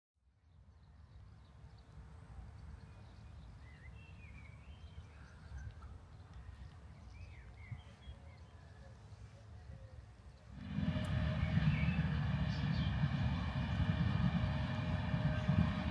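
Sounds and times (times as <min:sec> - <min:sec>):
birds chirping and warbling: 0:00.5 - 0:15.9
low uneven rumble: 0:10.5 - 0:15.9.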